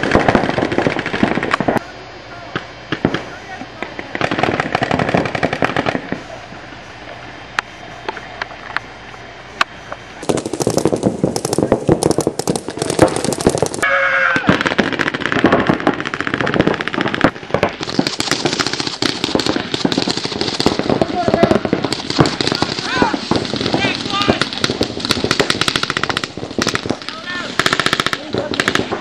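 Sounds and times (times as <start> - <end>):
paintball markers firing: 10.2 - 13.8, 14.4 - 29.0.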